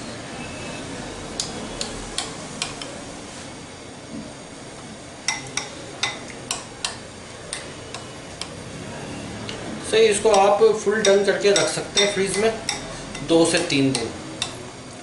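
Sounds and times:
metal spoon clinking on glass bowl: 0:10.3 - 0:14.6.

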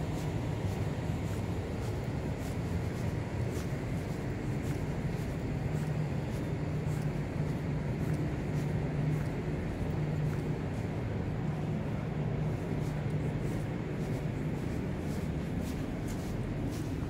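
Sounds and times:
city background rumble: 0:00.0 - 0:17.0
faint footsteps ticking: 0:00.0 - 0:17.0.

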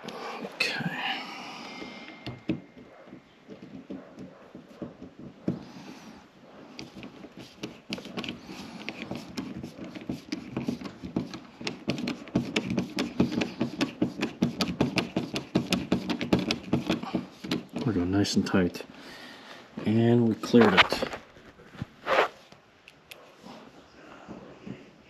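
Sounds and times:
screwdriver clicking and scraping: 0:06.7 - 0:18.0.

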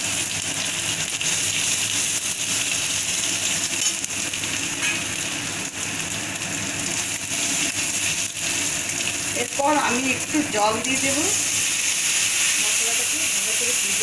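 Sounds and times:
spice paste sizzling in hot oil: 0:00.0 - 0:14.0
metal spatula scraping and tapping: 0:04.8 - 0:05.0.

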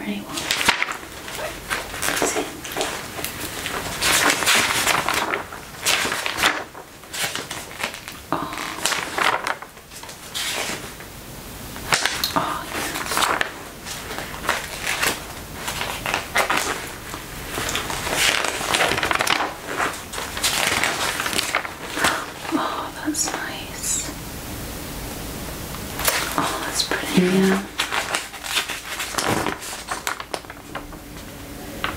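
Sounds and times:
magazine pages turning: 0:00.3 - 0:11.1, 0:11.8 - 0:23.6, 0:26.0 - 0:31.9.

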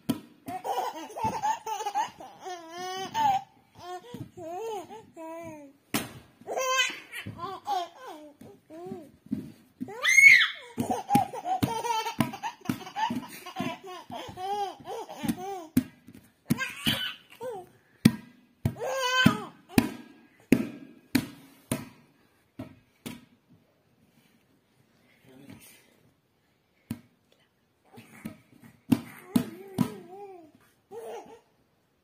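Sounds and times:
baby laughing and squealing: 0:00.5 - 0:05.1, 0:06.5 - 0:09.0, 0:09.9 - 0:15.8, 0:16.5 - 0:17.7.

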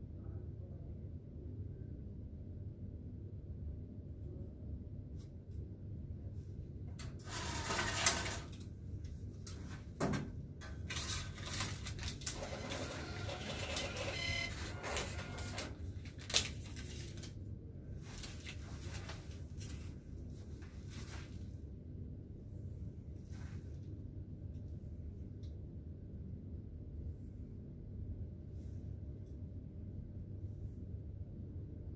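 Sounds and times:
receipt printer running: 0:07.2 - 0:08.6, 0:10.8 - 0:15.9.

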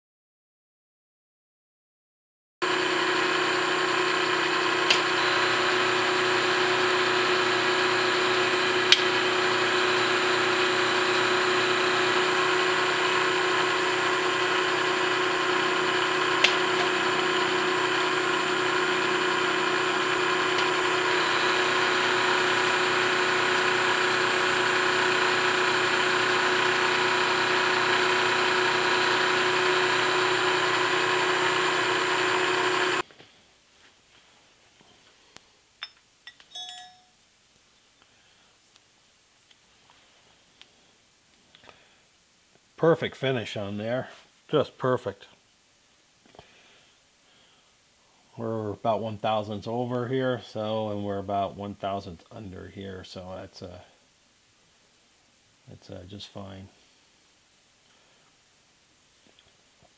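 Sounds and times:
milling machine cutting metal: 0:02.6 - 0:33.0.

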